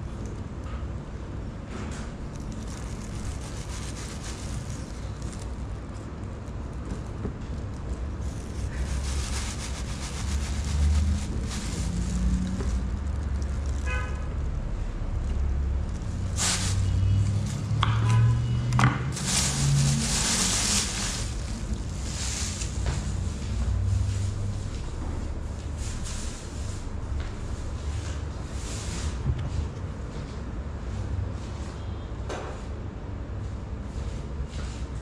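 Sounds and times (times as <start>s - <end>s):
scraping hisses: 16.3s - 17.3s
steady low rumble: 19.1s - 28.6s.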